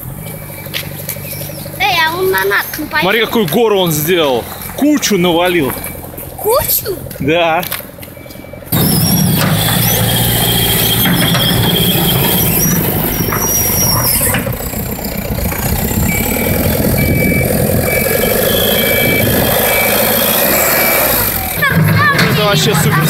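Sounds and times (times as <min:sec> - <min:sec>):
diesel engine running: 0:00.0 - 0:23.0
reversing alarm beeps: 0:08.2 - 0:14.3, 0:16.0 - 0:21.8
high machine squeals: 0:08.2 - 0:14.7, 0:16.1 - 0:22.7.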